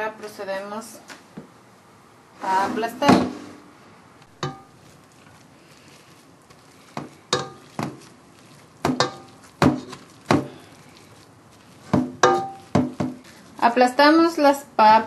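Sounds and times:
potato masher knocking metal pot: 8.8 - 10.5, 11.9 - 13.2.

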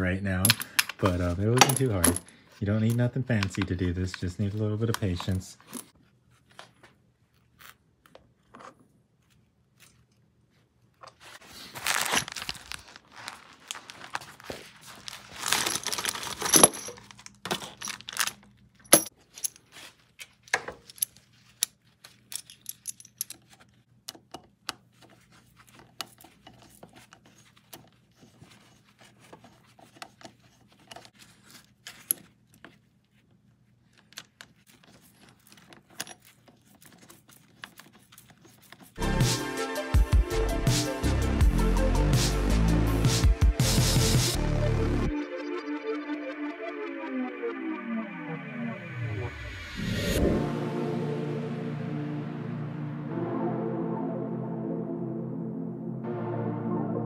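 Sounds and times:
gloved hands rustling: 0.6 - 39.0
metallic clicks and clinks: 20.7 - 23.5.

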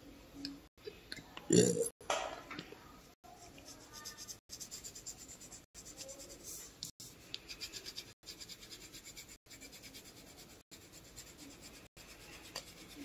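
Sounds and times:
pencil scratching on paper: 3.3 - 13.0.

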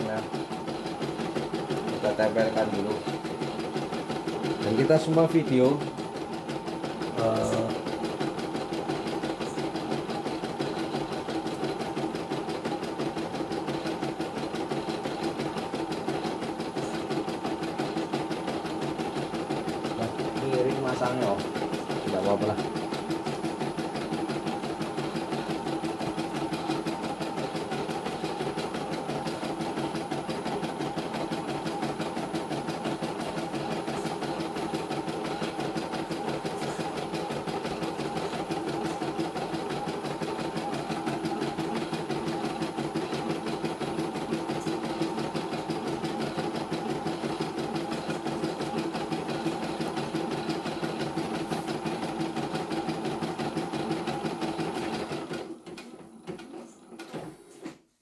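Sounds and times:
embroidery machine needle chatter: 0.0 - 55.4.

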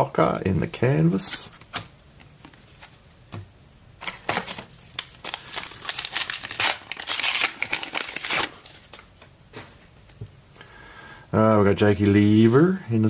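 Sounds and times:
foil wrapper tearing and crinkling: 4.9 - 9.1.

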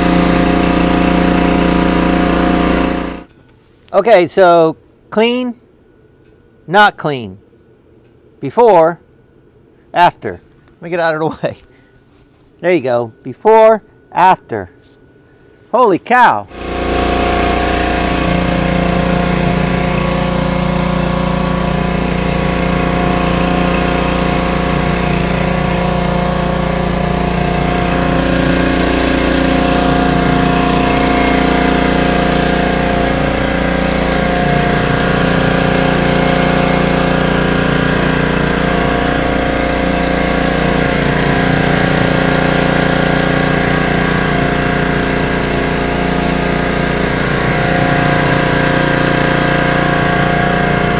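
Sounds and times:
high-pressure water hissing: 0.0 - 3.3, 16.5 - 50.9
pressure washer engine running: 0.0 - 3.3, 16.5 - 50.9.

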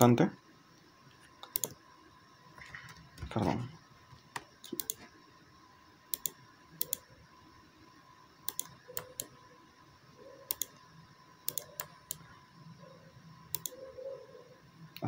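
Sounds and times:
faint steady hum: 0.0 - 15.0
mouse and keyboard clicks: 1.4 - 1.8, 4.4 - 5.0, 6.1 - 7.0, 8.5 - 9.3, 10.5 - 10.8, 11.5 - 12.2, 13.5 - 13.8.

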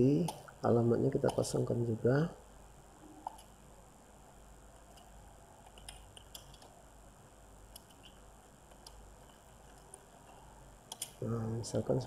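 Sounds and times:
low steady hiss: 0.0 - 12.0
typing on a keyboard: 5.7 - 6.7.

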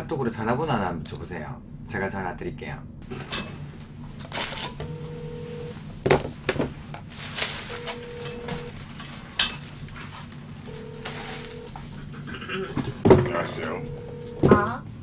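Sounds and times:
telephone ringback tone: 4.8 - 5.8, 7.7 - 8.8, 10.7 - 11.8, 13.3 - 14.8
plastic bag rustling: 6.3 - 11.9.

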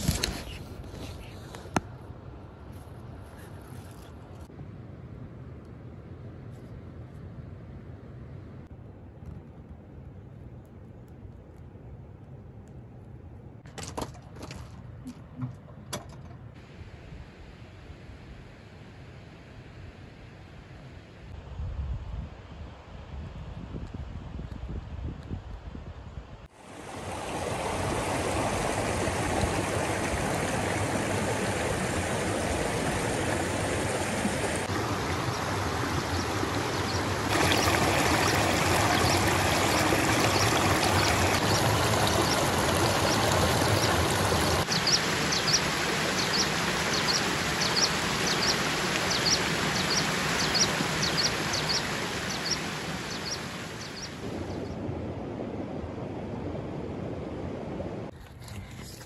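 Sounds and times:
stream running over pebbles: 26.6 - 54.5.

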